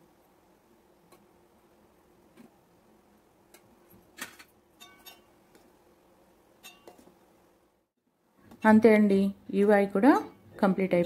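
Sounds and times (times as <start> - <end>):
spoon clinking on metal pan: 4.8 - 5.3, 6.6 - 7.0.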